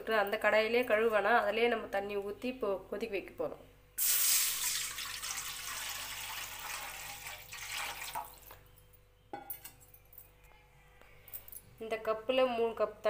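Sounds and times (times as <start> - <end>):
water pouring into metal pot: 4.0 - 8.5.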